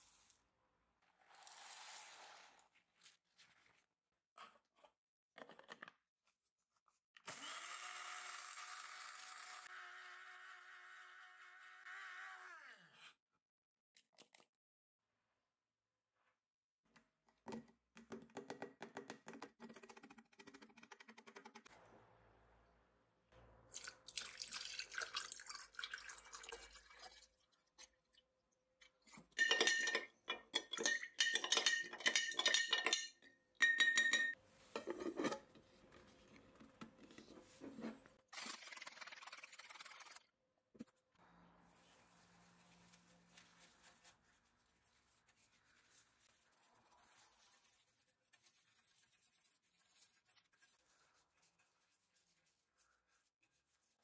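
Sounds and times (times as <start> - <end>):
liquid pouring: 23.7 - 27.7
stirring clinks in glass jar: 29.4 - 34.4.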